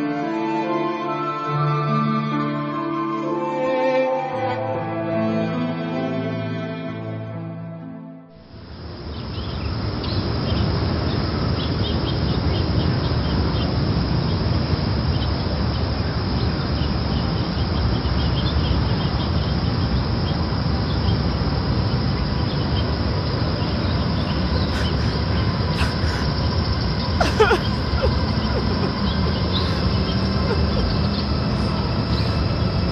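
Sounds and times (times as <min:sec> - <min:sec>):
low rumbling haze: 0:08.5 - 0:32.9
small birds chirping: 0:08.5 - 0:32.9.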